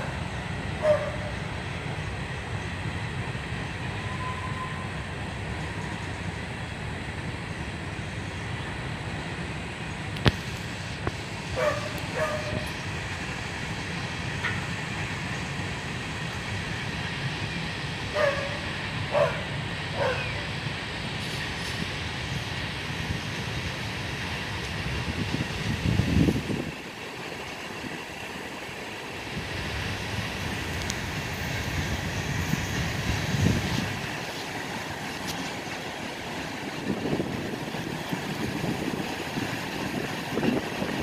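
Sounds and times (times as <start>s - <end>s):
freight train rumbling past: 0.0s - 41.0s
dog barking: 0.8s - 1.3s, 11.6s - 12.6s, 18.1s - 20.3s.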